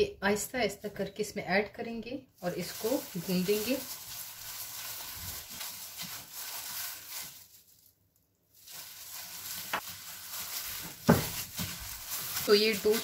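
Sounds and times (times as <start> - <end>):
gloved hand rustling dry mixture: 2.3 - 7.9, 8.5 - 13.0.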